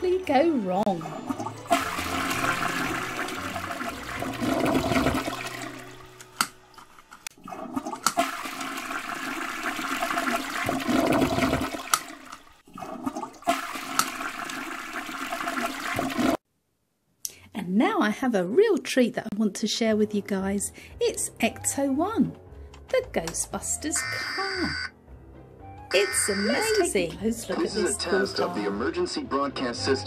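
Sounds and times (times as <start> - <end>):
toilet flushing: 0.8 - 16.4.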